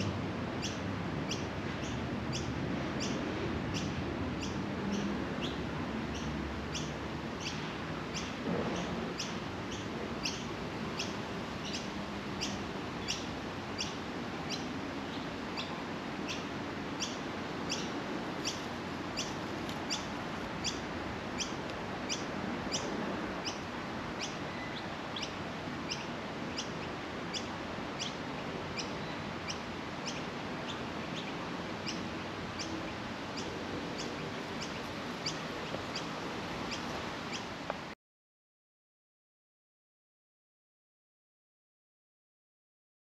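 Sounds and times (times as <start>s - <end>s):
small bird chirping: 9.2s - 20.8s, 28.8s - 32.0s, 32.6s - 36.1s, 36.7s - 37.5s.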